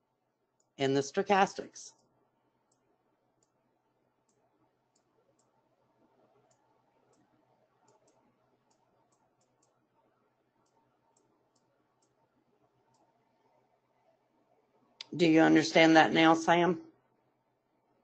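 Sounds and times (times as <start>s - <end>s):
small clicks: 4.2s - 5.6s, 6.4s - 9.8s, 10.6s - 12.2s, 12.8s - 13.2s.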